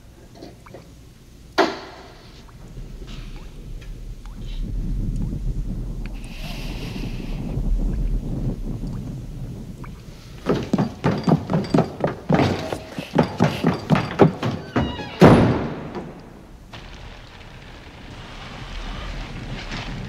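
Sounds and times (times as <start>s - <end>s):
heavy thumps: 7.1s - 20.0s
wooden door slamming: 10.4s - 17.2s.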